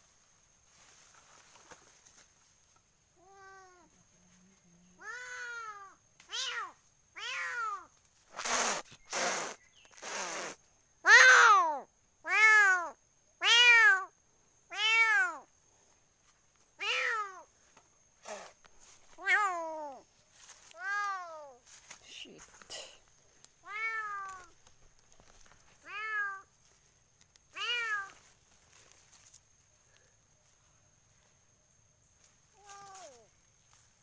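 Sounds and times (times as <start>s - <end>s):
cat meowing: 5.0s - 7.9s, 12.3s - 14.1s, 14.7s - 15.5s, 16.8s - 17.5s, 23.6s - 24.5s, 25.8s - 26.5s, 27.6s - 28.2s.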